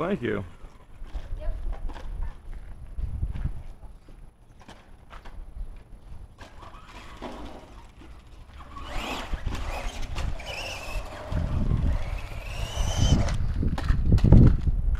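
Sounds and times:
toy truck motor whine: 8.4 - 13.5.

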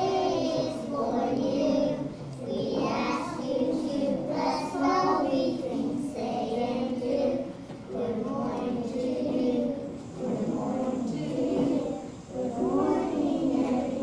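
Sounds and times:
young children singing: 0.0 - 14.0.

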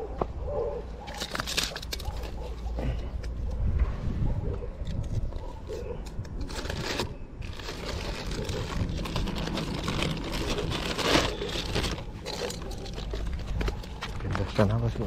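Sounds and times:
plastic bag crinkling: 6.4 - 15.0.

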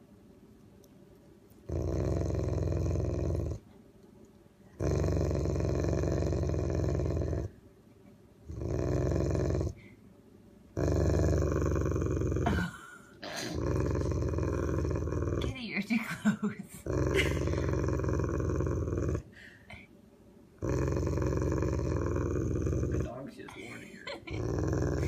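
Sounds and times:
dog making deep rough noise: 20.6 - 23.2.

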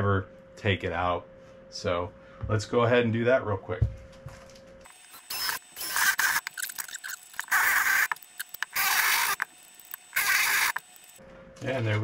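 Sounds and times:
drill boring through plastic: 4.9 - 11.2.

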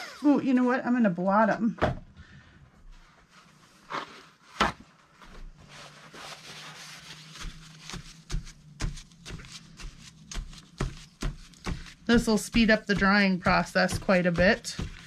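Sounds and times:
paper rustling and rubbing: 3.0 - 15.0
soft pats on paper: 5.2 - 15.0.

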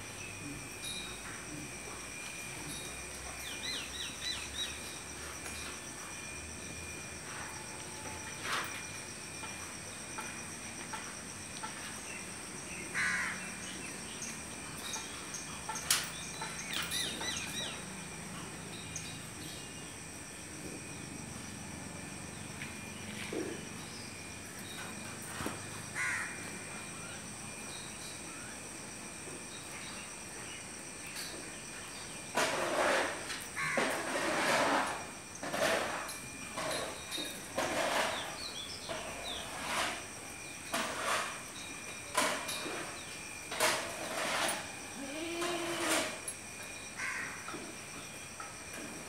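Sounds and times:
high insect drone: 0.0 - 49.0
crow caws: 12.9 - 13.5, 25.9 - 26.4, 47.0 - 47.5.

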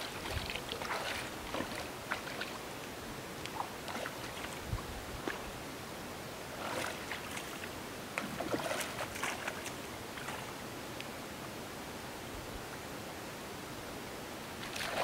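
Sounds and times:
fish splashing in water: 0.0 - 2.6, 14.6 - 15.0
steady outdoor hiss: 0.0 - 15.0.

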